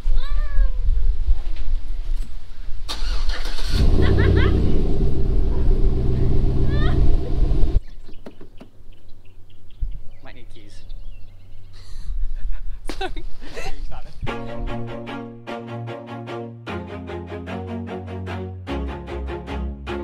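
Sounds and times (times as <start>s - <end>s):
pickup engine revving and idling: 3.7s - 7.8s.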